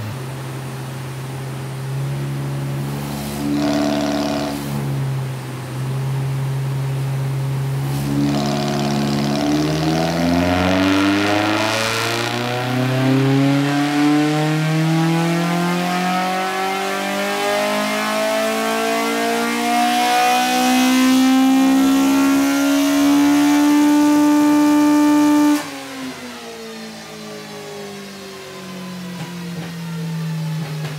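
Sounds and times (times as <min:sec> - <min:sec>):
car engine revving at full throttle: 0:00.0 - 0:30.9.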